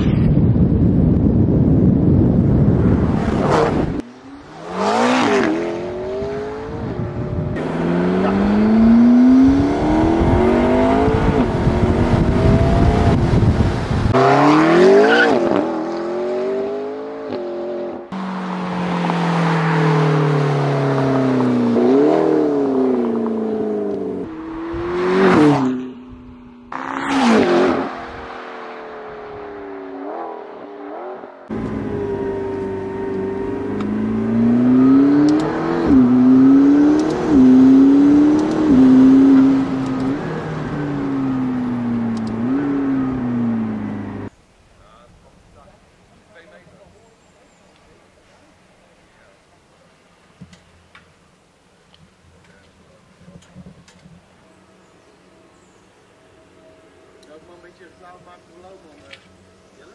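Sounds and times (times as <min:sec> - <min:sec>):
car fly-bys: 0:02.6 - 0:44.3
sports car accelerating hard: 0:02.7 - 0:44.3.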